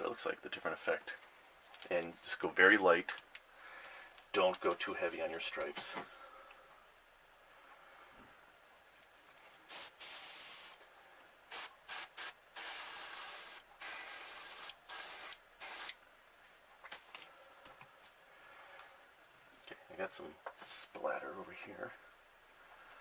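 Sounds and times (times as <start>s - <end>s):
airbrush spraying hiss: 9.7s - 10.8s, 11.5s - 16.0s.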